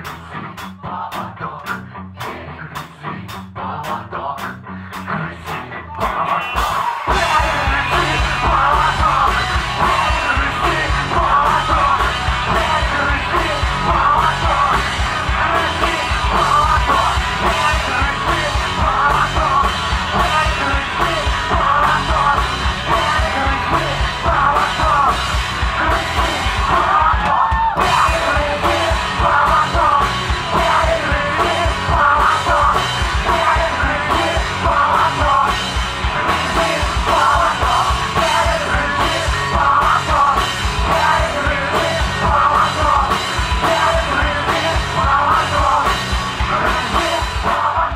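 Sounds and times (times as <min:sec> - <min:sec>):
loud punk rock band: 0:00.0 - 0:47.9
shouted sung vocals: 0:05.9 - 0:47.9.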